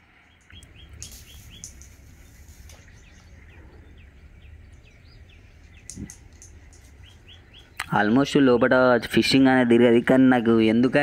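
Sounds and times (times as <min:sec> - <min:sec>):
songbird chirping: 0:00.0 - 0:11.0
low rumble: 0:00.6 - 0:07.8.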